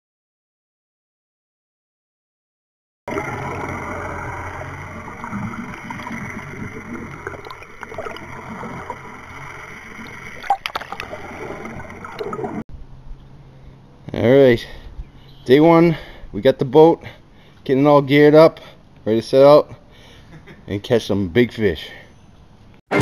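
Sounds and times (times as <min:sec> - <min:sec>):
water gurgling and rushing: 0:03.1 - 0:12.7
steady low hum: 0:03.1 - 0:15.4.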